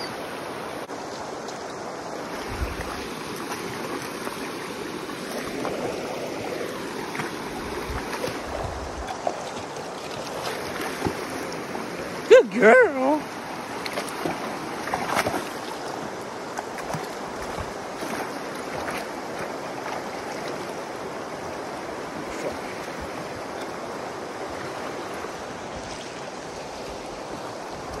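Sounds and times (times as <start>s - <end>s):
river rushing over rocks: 0.0s - 28.0s
splashes of wading: 0.8s - 28.0s.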